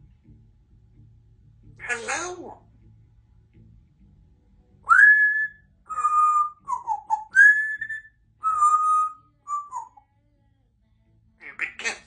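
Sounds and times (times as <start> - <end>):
parrot whistling: 4.9 - 10.0.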